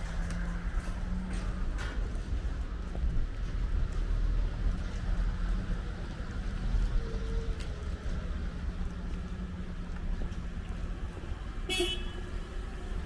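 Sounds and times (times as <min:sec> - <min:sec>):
road traffic rumble: 0:00.0 - 0:13.0
car horn toot: 0:11.7 - 0:12.3.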